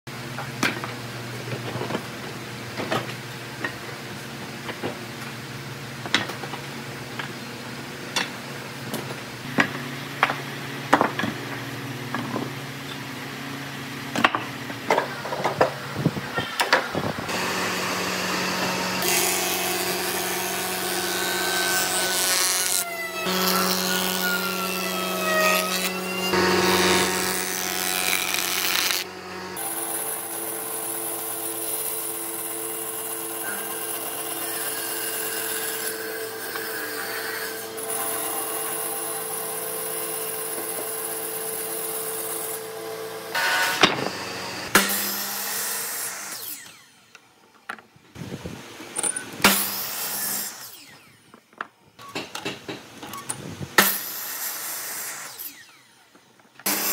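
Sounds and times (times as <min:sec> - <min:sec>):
band saw running: 0:17.3 - 0:47.1, 0:53.8 - 0:56.9
jointer planing a board: 0:17.3 - 0:47.2, 0:53.8 - 0:56.9.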